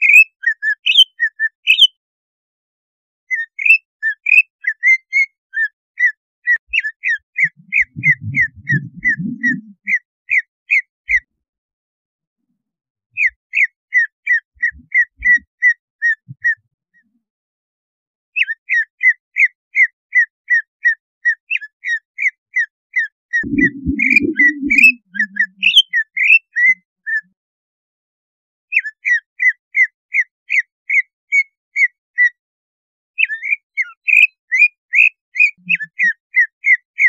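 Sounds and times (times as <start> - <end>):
bird chirping: 0.0 - 2.0, 3.3 - 10.4, 13.2 - 16.6, 23.4 - 27.2.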